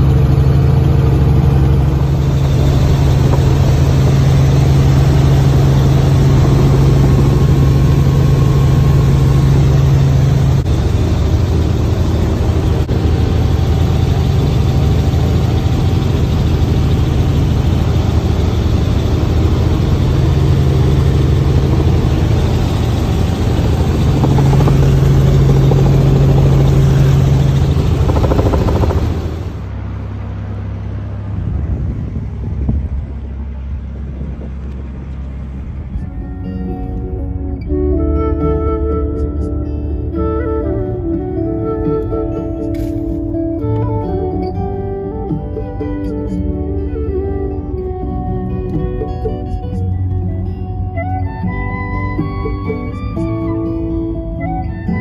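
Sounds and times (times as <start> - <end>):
helicopter engine and rotor drone: 0.0 - 37.2.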